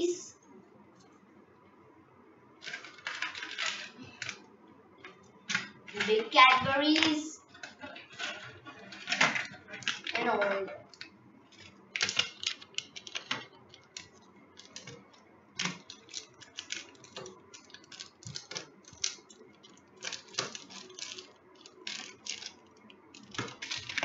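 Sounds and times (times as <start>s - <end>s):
wrappers crinkling: 10.9s - 24.0s.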